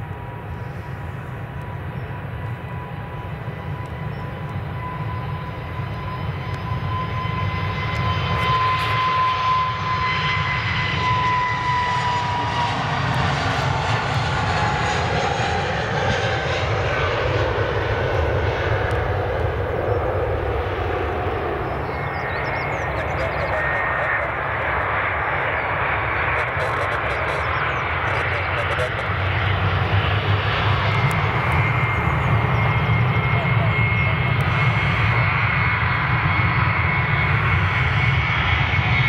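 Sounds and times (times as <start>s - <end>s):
airliner engines rumble and whine: 0.0s - 39.0s.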